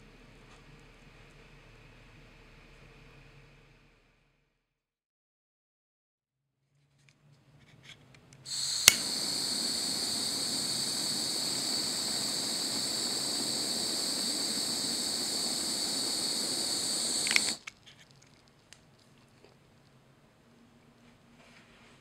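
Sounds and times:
cook torch flame hissing: 0:08.5 - 0:17.7
faint ticks: 0:08.5 - 0:17.8.

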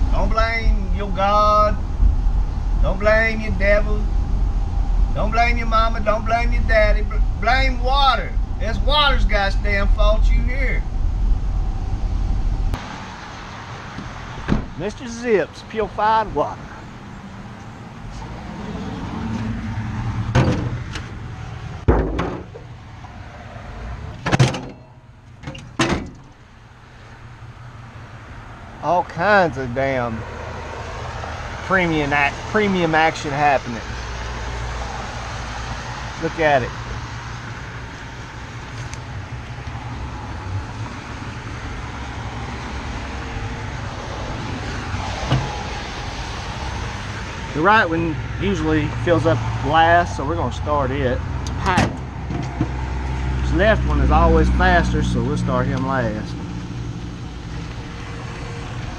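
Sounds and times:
steady low hum: 0:00.0 - 0:12.8
road traffic rumble: 0:00.0 - 0:58.9.

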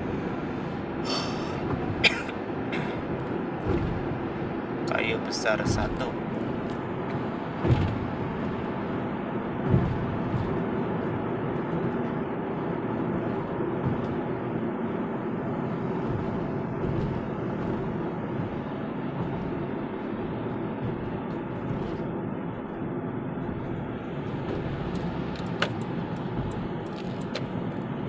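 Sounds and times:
car engine hum: 0:00.0 - 0:28.0
road and tyre noise: 0:00.0 - 0:28.0
thump: 0:07.6 - 0:08.0, 0:09.6 - 0:10.6.

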